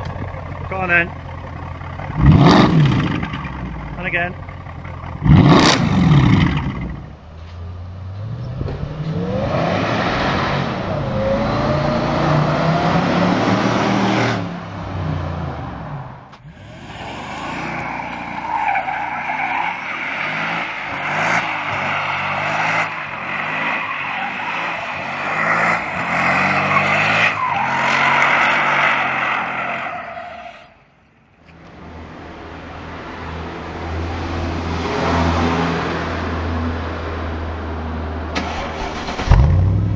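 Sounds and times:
car engine revving: 0.0s - 29.6s, 38.3s - 39.9s.

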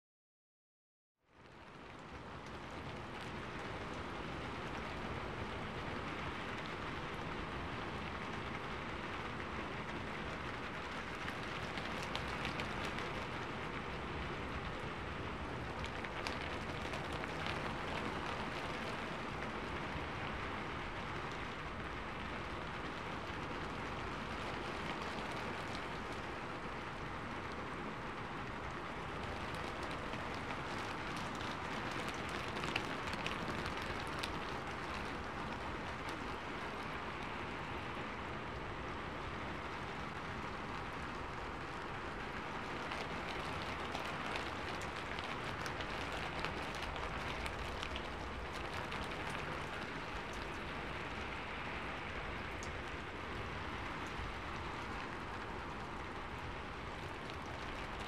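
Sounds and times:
rain falling on lake surface: 1.2s - 58.0s.

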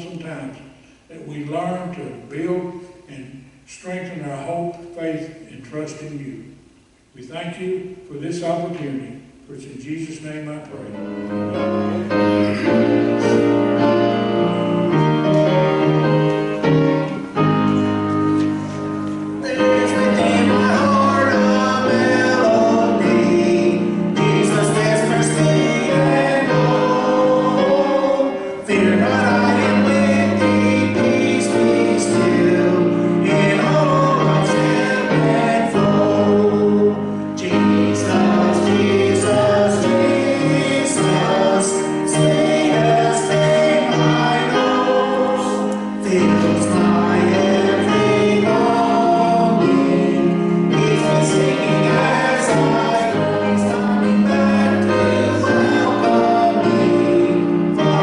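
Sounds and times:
instrumental accompaniment: 10.8s - 58.0s
man singing gospel: 19.4s - 58.0s.

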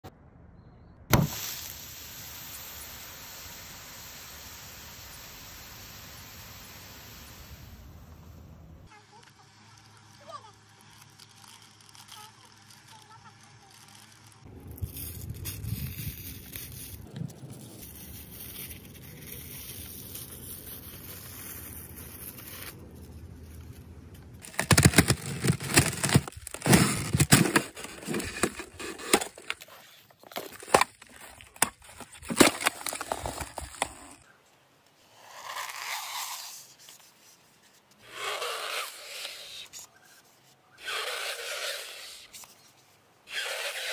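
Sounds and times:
ice cracking under footsteps: 23.4s - 34.2s.

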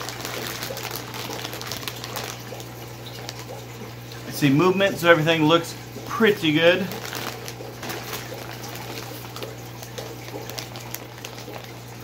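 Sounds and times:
plastic bags crinkling: 0.0s - 3.8s, 6.2s - 12.0s
water sloshing: 5.8s - 12.0s.

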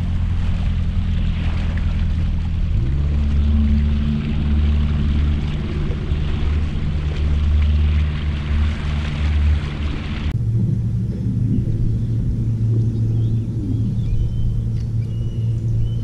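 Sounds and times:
outboard motor running: 0.0s - 16.0s
water rushing: 0.0s - 16.0s.

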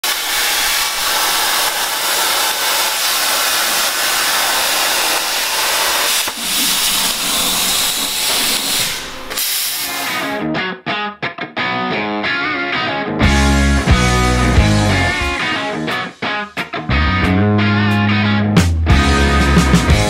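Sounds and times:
plasma cutter hissing: 0.0s - 10.3s.

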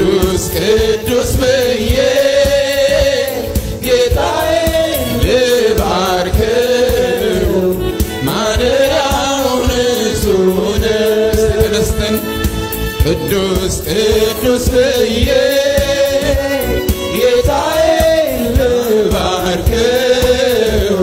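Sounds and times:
instrumental backing: 0.0s - 21.0s
man singing into a microphone: 0.0s - 21.0s.

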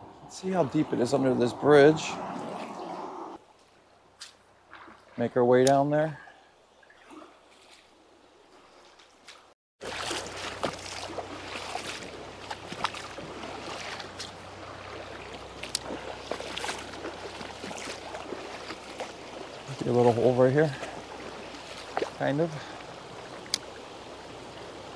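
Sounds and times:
creek flowing over stones: 6.8s - 24.9s.

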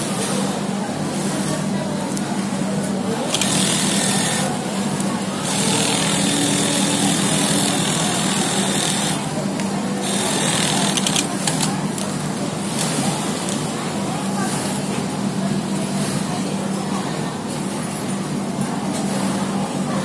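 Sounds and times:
sewing machine stitching: 3.3s - 4.6s, 5.4s - 9.3s, 10.0s - 11.7s.

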